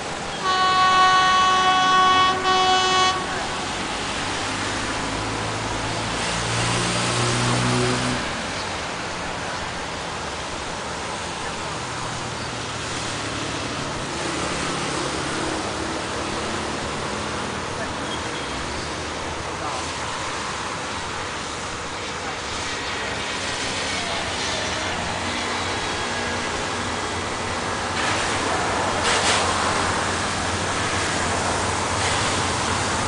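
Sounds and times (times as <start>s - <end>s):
locomotive diesel engine rumble: 0.0s - 33.0s
locomotive horn blasts: 0.3s - 3.8s.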